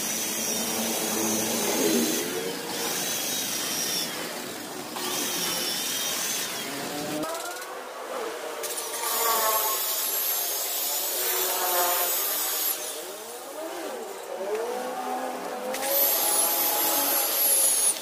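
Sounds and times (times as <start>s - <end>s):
electric car polisher running: 0.0s - 7.3s.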